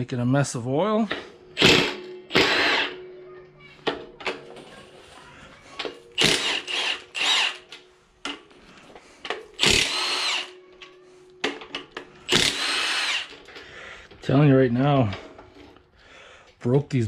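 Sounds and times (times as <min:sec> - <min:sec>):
cordless power tool spinning: 0:01.6 - 0:02.9, 0:06.2 - 0:07.8, 0:09.6 - 0:10.5, 0:12.3 - 0:13.5.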